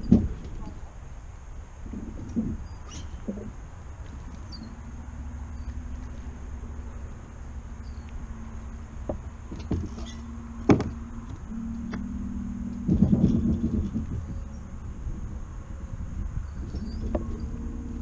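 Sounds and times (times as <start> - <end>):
low rumble: 0.0 - 18.0
electric trolling motor whine: 3.4 - 18.0
knocks on boat: 9.1 - 10.0, 10.6 - 11.0.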